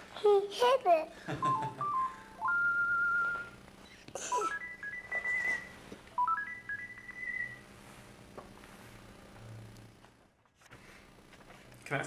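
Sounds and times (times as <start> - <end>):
robot dog beep melodies: 1.6 - 3.6, 4.3 - 7.6.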